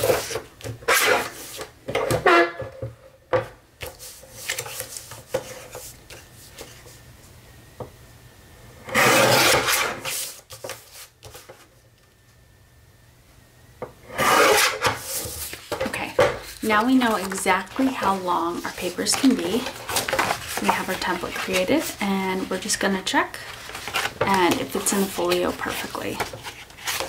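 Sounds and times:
paper scraping on trimmer: 0:08.9 - 0:10.4, 0:14.2 - 0:15.3.

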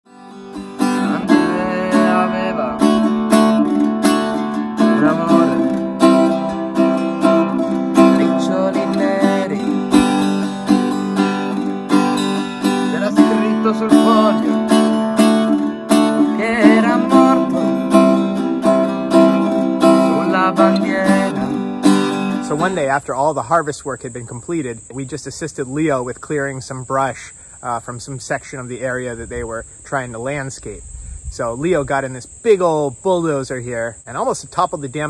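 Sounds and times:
acoustic guitar music: 0:00.0 - 0:23.7.

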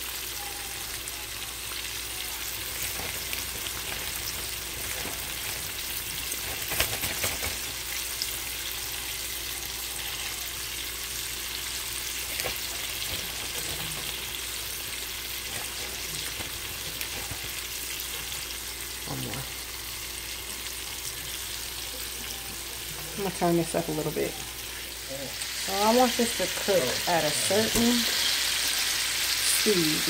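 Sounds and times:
chicken deep-frying in oil: 0:00.0 - 0:30.0.

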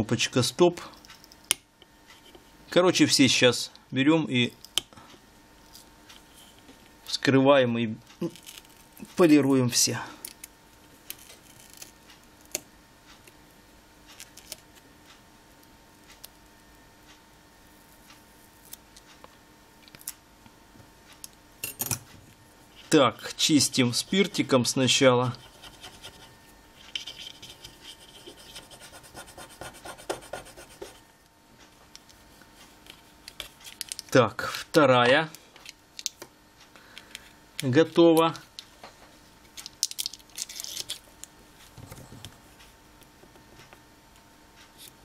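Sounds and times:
cotton swab scratching circuit board: 0:25.2 - 0:31.0.

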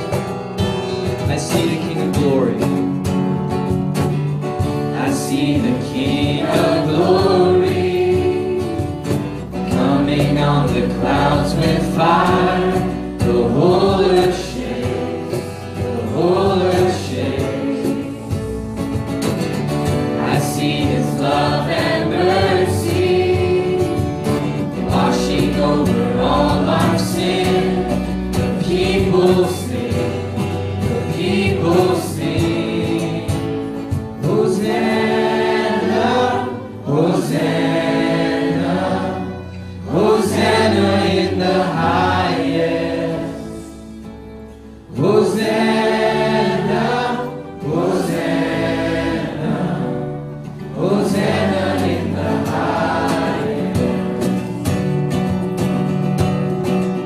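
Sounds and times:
people singing worship song: 0:00.0 - 0:02.8, 0:03.7 - 0:55.2
congregation singing along: 0:00.0 - 0:55.4
strummed acoustic guitars: 0:00.0 - 0:57.0
upright bass: 0:00.0 - 0:57.0.

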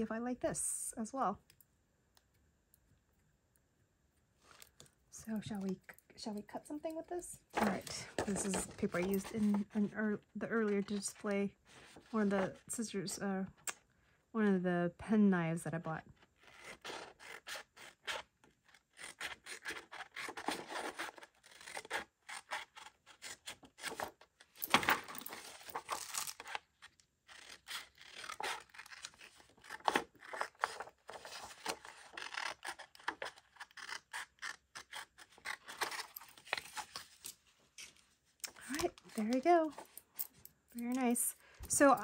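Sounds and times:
paper rustling: 0:07.6 - 0:09.8.

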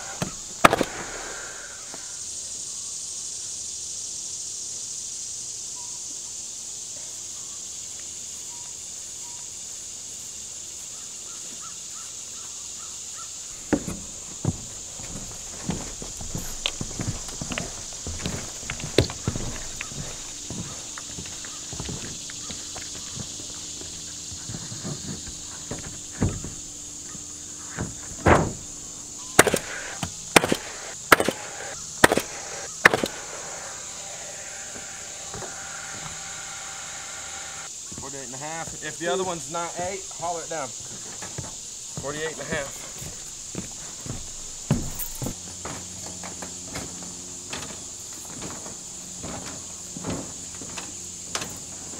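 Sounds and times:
nail gun shots: 0:00.0 - 0:01.7, 0:29.4 - 0:33.8
footsteps on plywood: 0:00.0 - 0:02.0, 0:13.6 - 0:28.8, 0:37.8 - 0:38.9, 0:40.7 - 0:51.9
insect chorus drone: 0:00.0 - 0:51.9
faint bird chirps: 0:05.7 - 0:09.8.

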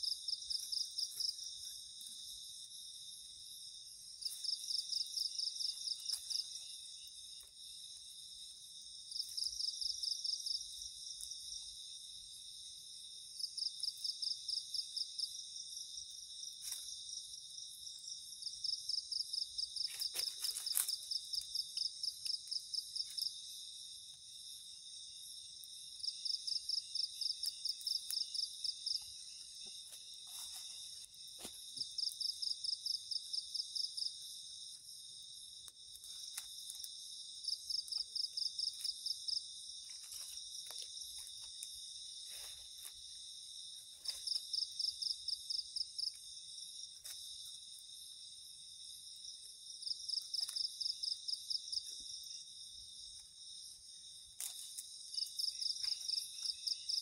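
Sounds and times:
crickets trilling: 0:00.0 - 0:57.0.

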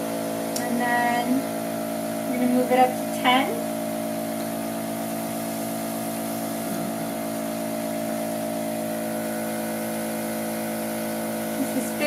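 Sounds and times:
air compressor motor hum: 0:00.0 - 0:12.0
airbrush hissing: 0:03.7 - 0:12.0.

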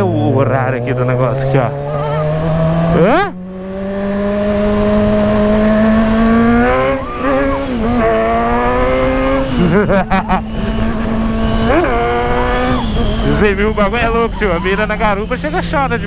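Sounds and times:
motorcycle engine accelerating: 0:00.0 - 0:16.0.

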